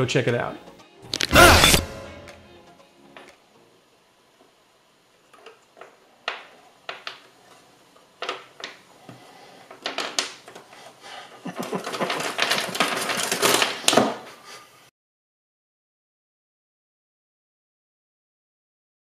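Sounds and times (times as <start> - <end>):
wooden pieces clattering on table: 9.8 - 10.5, 11.5 - 14.2.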